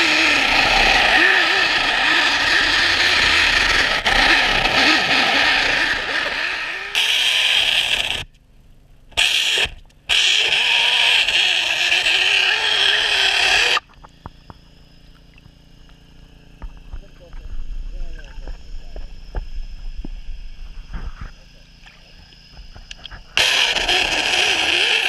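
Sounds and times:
machinery whining under water: 0.0 - 25.0
faint clicks and ticks: 8.0 - 10.1.

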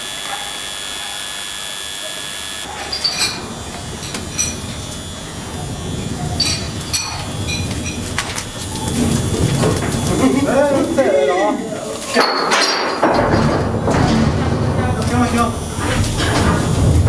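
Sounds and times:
faint high whining tones: 0.0 - 12.2
steady hiss: 0.0 - 12.4, 14.5 - 17.0
metallic clinks: 2.7 - 5.0, 6.3 - 8.2.

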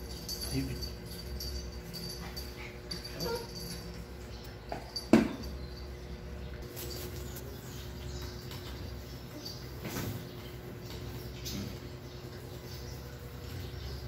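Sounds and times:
puppies eating dry kibble: 6.6 - 9.8.

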